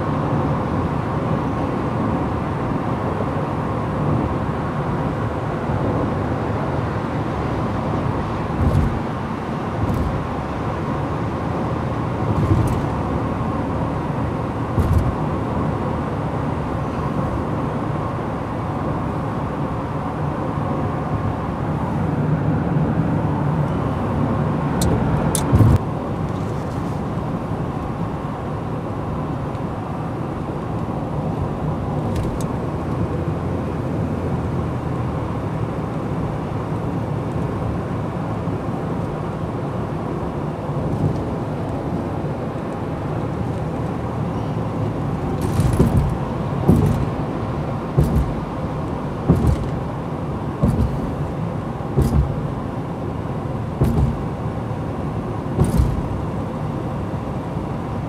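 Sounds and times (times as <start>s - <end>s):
car road noise from inside: 0.0s - 58.0s
short thumps: 8.6s - 9.1s, 9.8s - 10.3s, 12.3s - 13.0s, 14.8s - 15.2s, 45.4s - 47.3s, 47.9s - 49.9s, 50.6s - 51.3s, 52.0s - 52.5s, 53.8s - 54.4s, 55.6s - 56.2s.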